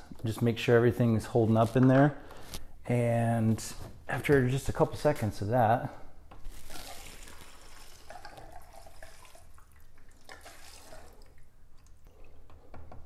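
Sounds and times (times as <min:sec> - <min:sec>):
fuel trickling into a tank: 0:06.7 - 0:12.6.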